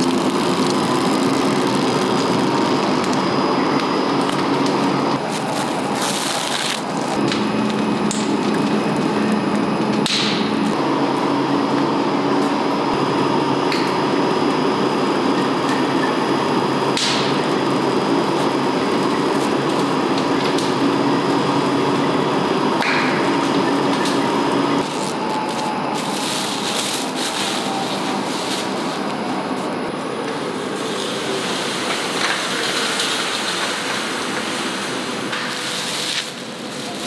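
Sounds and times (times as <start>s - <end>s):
plastic film crinkling: 0.0s - 3.1s, 5.2s - 7.9s, 24.8s - 29.7s
machine hum: 0.0s - 37.0s.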